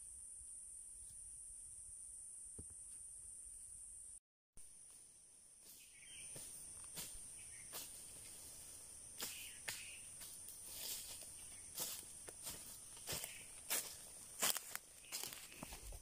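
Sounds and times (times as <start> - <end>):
footsteps on dry leaves: 5.7 - 8.6, 9.2 - 16.0
high-pitched insect drone: 5.7 - 15.8.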